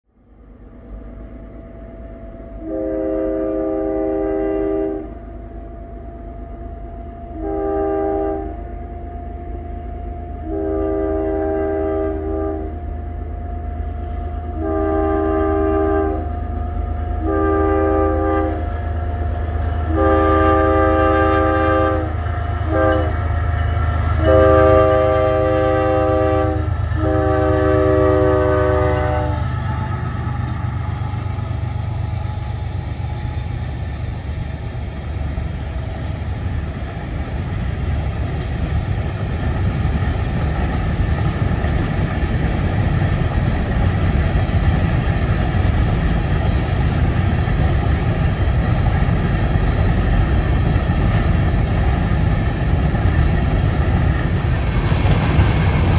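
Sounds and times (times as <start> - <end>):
train rumbling: 0.1 - 55.9
locomotive air horn blasts: 2.6 - 5.2, 7.3 - 13.6, 14.4 - 30.2.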